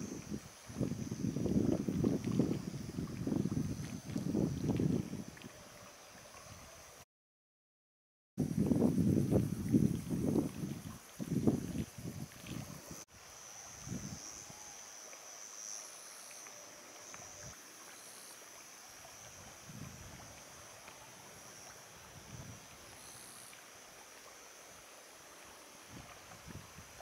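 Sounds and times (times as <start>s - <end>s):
wind gusts on microphone: 0.0s - 6.9s, 8.4s - 13.1s, 13.8s - 14.6s, 19.2s - 23.0s, 25.9s - 27.0s
steady high hiss: 0.0s - 7.0s, 8.4s - 27.0s.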